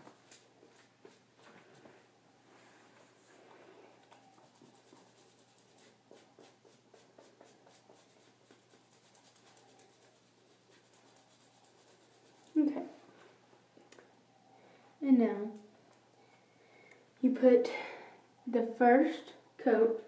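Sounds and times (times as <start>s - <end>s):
nail buffer rubbing toenails: 4.2s - 12.6s.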